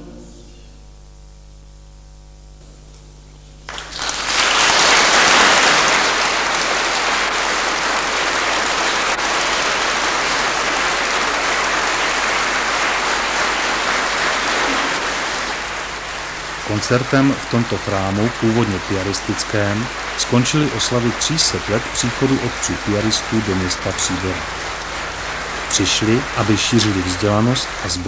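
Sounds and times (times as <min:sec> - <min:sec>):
audience applause: 0:03.6 - 0:28.0
male choir chord: 0:09.5 - 0:28.0.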